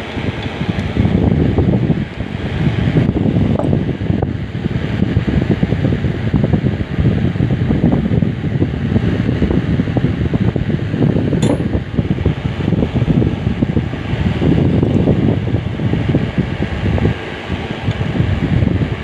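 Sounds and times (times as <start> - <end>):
fan running: 0.0 - 19.0
sharp click: 11.4 - 11.8.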